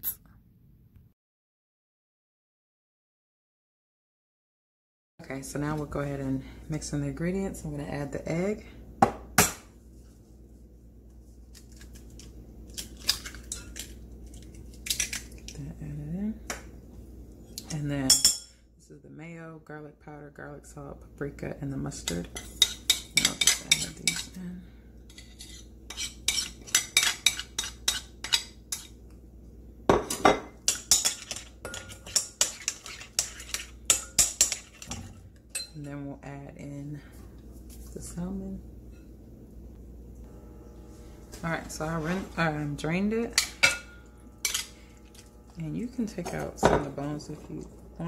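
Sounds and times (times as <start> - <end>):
metal spoon clinking on plate and bowl: 30.0 - 35.8, 43.3 - 44.8.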